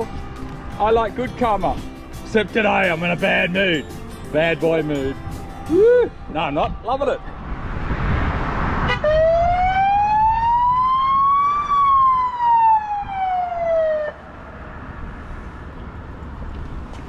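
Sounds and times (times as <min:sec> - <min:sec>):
police siren wail: 0:05.2 - 0:07.8, 0:08.9 - 0:14.4.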